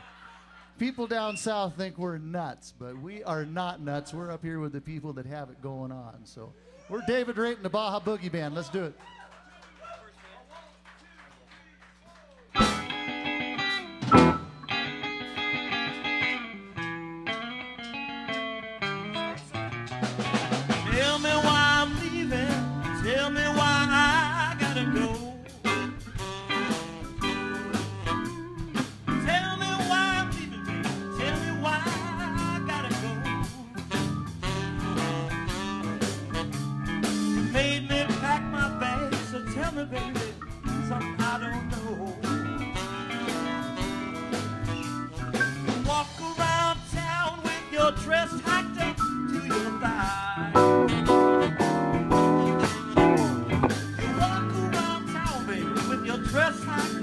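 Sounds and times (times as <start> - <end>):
drums: 10.8 - 57.0
electric guitars: 12.5 - 57.0
keyboard: 12.6 - 19.5, 20.1 - 57.0
saxophone: 23.7 - 28.9, 33.2 - 37.5, 42.4 - 45.7, 50.6 - 54.2.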